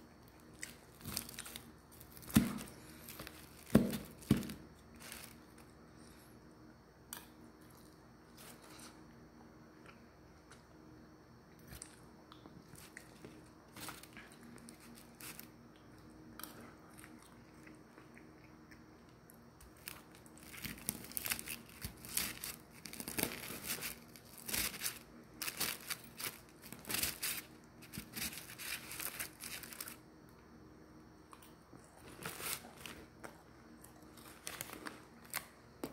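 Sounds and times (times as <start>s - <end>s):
crispy food crunching: 0.2s - 6.2s, 11.6s - 30.0s, 31.3s - 35.9s.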